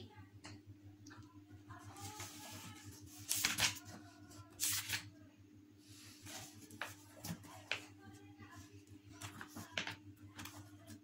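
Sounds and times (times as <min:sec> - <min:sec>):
paper rustling: 0:01.9 - 0:05.0.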